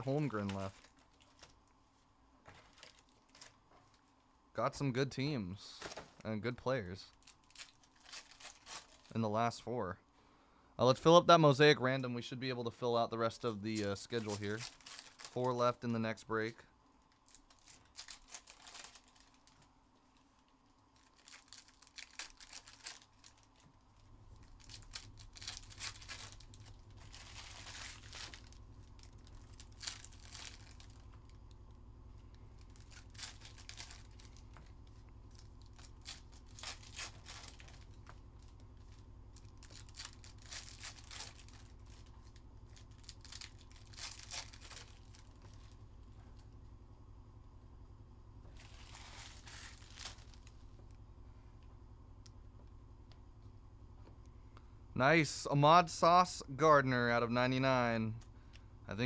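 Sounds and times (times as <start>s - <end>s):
wrappers tearing and crinkling: 0.0s - 1.6s, 2.6s - 4.0s, 7.0s - 9.2s, 13.4s - 15.9s, 17.1s - 31.5s, 32.5s - 45.8s, 48.5s - 50.6s
faint low hum: 0.0s - 59.0s.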